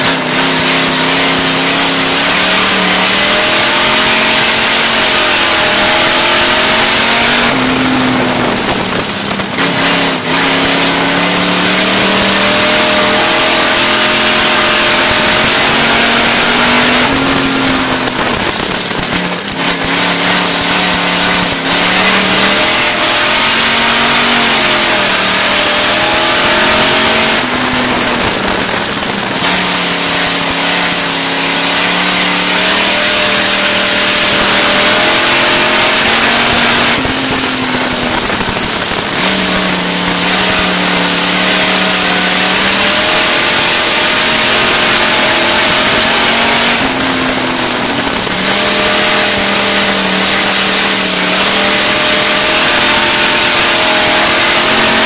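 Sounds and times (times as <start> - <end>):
race car engine: 0.0 - 55.0.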